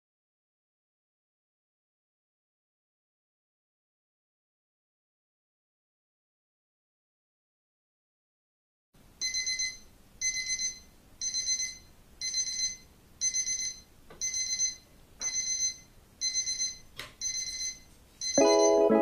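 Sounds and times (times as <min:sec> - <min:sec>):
alarm clock beeping: 0:09.2 - 0:19.0.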